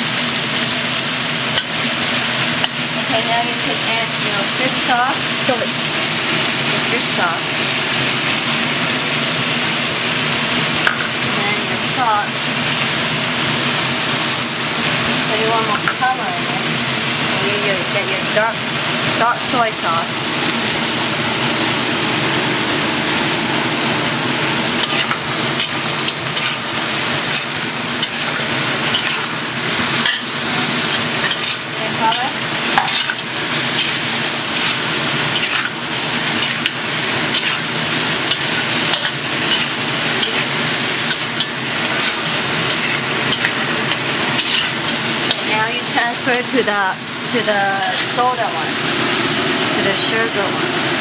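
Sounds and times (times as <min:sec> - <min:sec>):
meat sizzling in a wok: 0:00.0 - 0:51.0
spatula scraping a wok: 0:24.6 - 0:46.4, 0:47.8 - 0:48.6.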